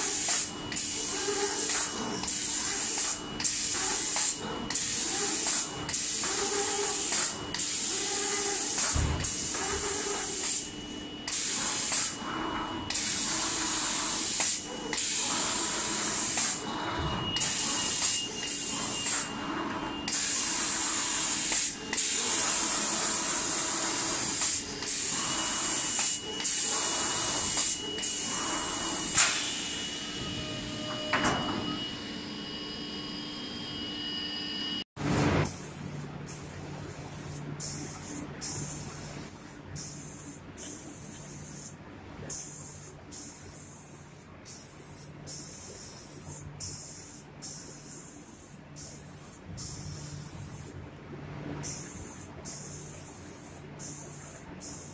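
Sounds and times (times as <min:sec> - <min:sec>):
spray gun hissing: 0:35.4 - 0:41.7, 0:51.6 - 0:54.9.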